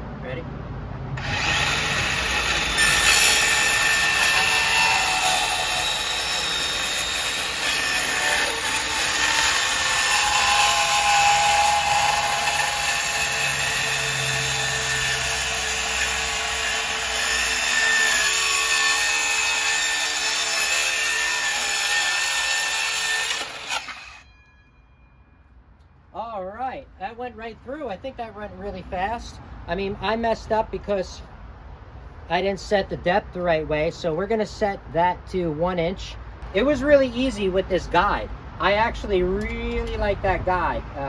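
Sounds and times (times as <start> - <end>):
circular saw cutting plywood: 1.2 - 24.4.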